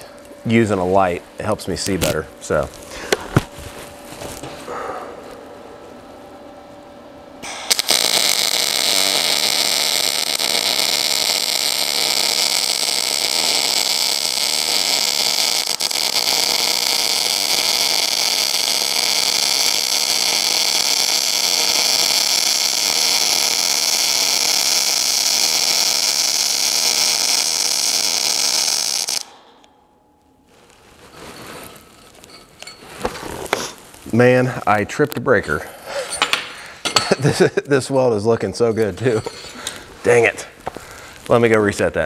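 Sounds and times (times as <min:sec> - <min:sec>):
welding arc hissing: 0:07.4 - 0:29.7.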